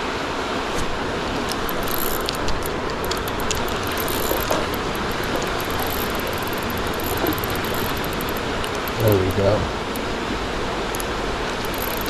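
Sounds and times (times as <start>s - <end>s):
fishing reel clicking: 1.5s - 9.2s, 10.9s - 12.0s.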